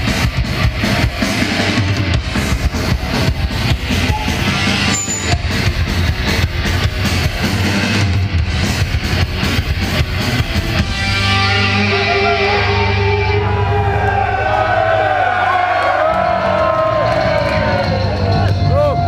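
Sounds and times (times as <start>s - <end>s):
fast drumming: 0.0s - 10.8s
distorted electric guitar: 0.0s - 15.4s.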